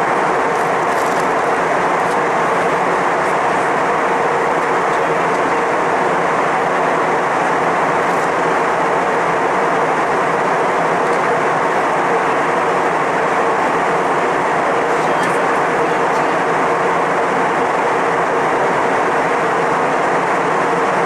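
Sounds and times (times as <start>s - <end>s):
airliner cabin engine rush: 0.0s - 21.0s.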